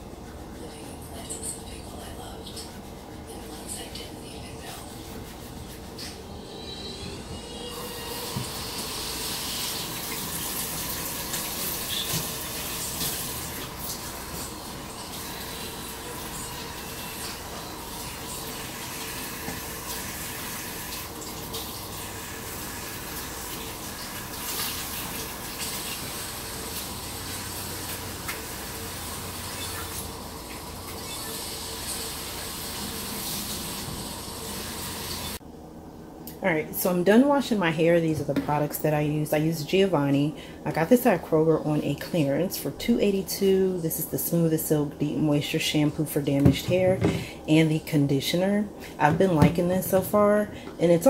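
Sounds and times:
tap running into sink: 10.9s - 13.2s.

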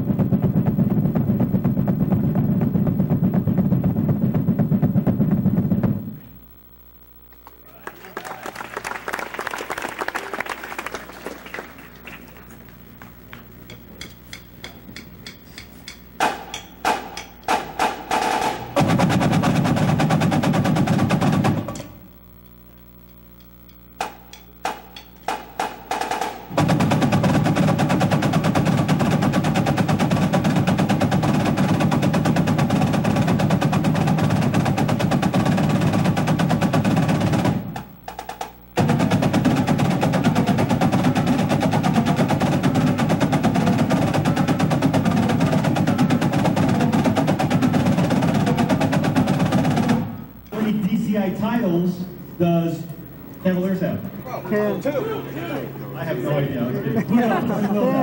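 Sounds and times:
marching snare drums playing: 0.0s - 6.3s, 12.7s - 22.1s, 23.9s - 51.8s.

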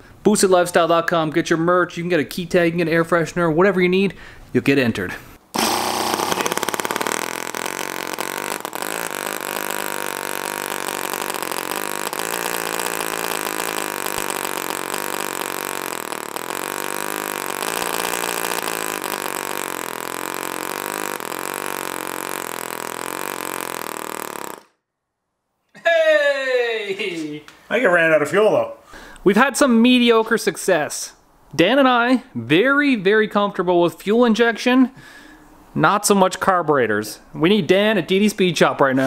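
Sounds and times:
small engine running: 5.6s - 24.8s.

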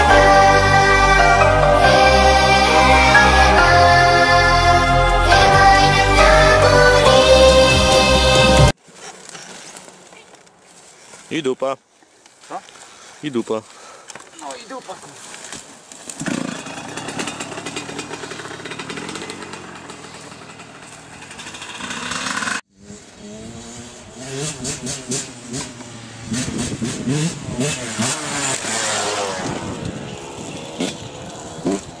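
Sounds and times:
off-road motorcycle engine revving: 16.1s - 32.0s
dirt bike engine revving: 16.2s - 32.0s.

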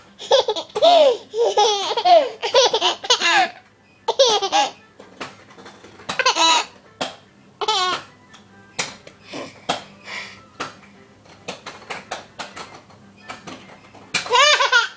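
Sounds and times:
baby laughing: 0.2s - 4.8s, 6.1s - 6.7s, 7.6s - 8.0s, 14.3s - 14.9s.

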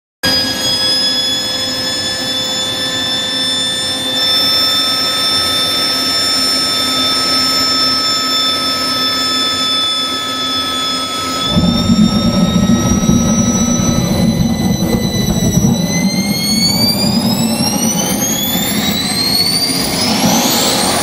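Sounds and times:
turbojet high whine: 0.3s - 21.0s
rush of air: 11.5s - 21.0s.

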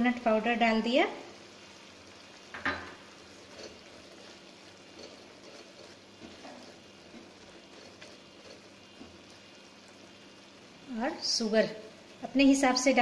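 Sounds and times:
spatula scraping pan: 2.6s - 9.4s.

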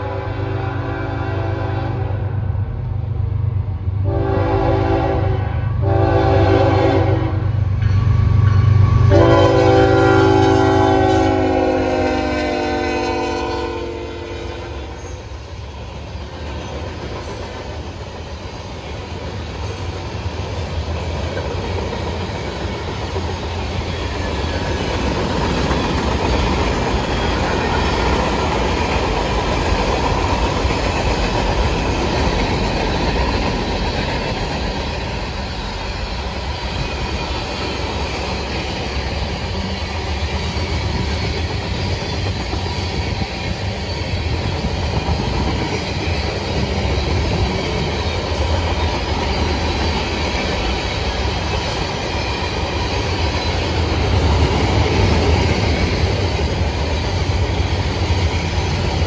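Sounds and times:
locomotive horn: 0.0s - 2.5s, 4.0s - 7.6s, 9.0s - 15.2s
train cars rolling on rails: 2.8s - 59.0s.

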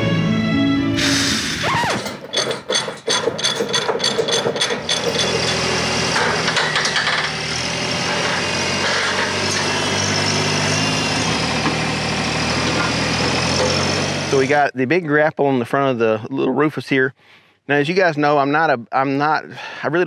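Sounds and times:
tractor diesel engine running: 1.8s - 14.6s
ratchet clicking: 2.0s - 7.5s.

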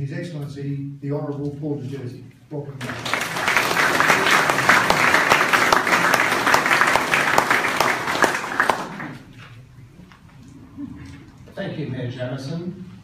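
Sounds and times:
audience applause: 2.8s - 9.3s.

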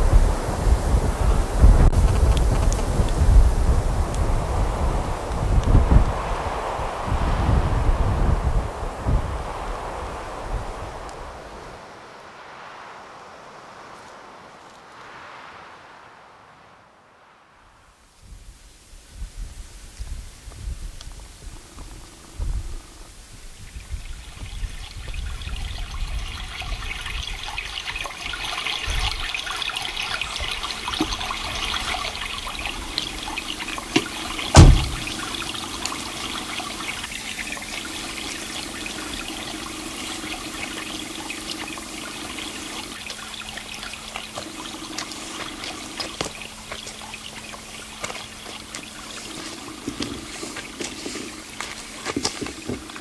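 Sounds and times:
water trickling: 19.9s - 53.0s
loud thump: 34.5s - 35.2s.

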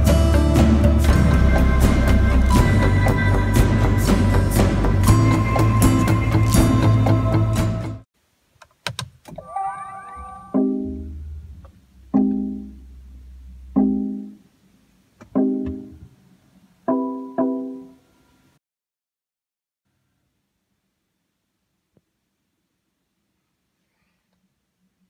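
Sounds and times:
low hum: 9.4s - 14.5s.

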